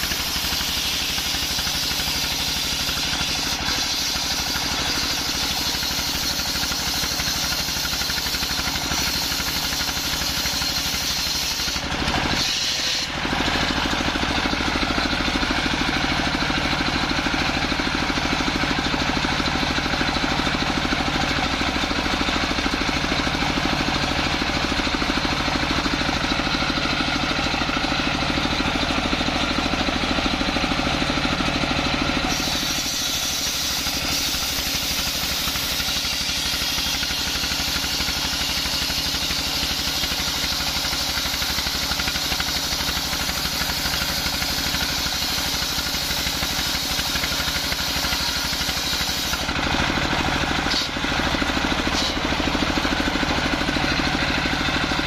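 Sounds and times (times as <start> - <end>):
circular saw ripping log: 0.0 - 14.4, 32.3 - 52.4
diesel engine running: 0.0 - 55.0.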